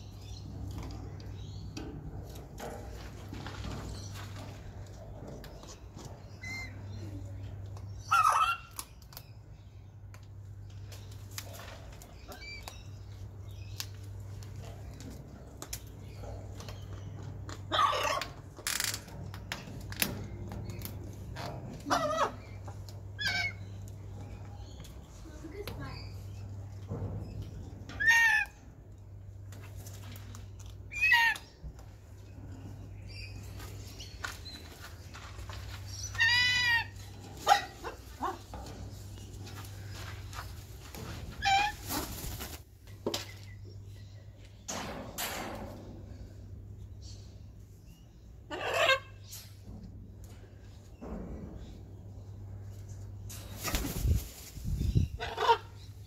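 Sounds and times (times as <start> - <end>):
cockatoo calls: 8.0 - 8.9, 17.7 - 18.4, 21.8 - 23.7, 27.9 - 28.6, 30.9 - 31.6, 35.9 - 38.8, 48.5 - 49.3, 55.0 - 56.0.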